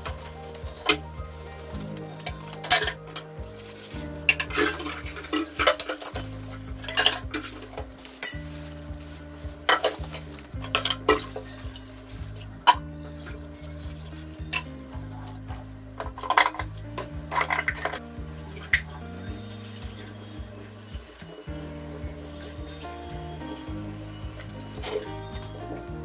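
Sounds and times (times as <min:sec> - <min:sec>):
dishes clanking and scraping: 0:01.8 - 0:03.3, 0:04.2 - 0:08.5, 0:09.7 - 0:11.5, 0:16.0 - 0:18.0.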